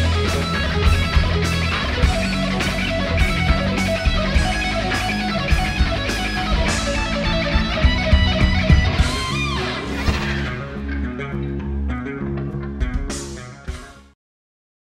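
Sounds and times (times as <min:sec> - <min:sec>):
drum and cymbal hits: 0:00.0 - 0:10.7
heavy metal electric guitar: 0:00.0 - 0:14.1.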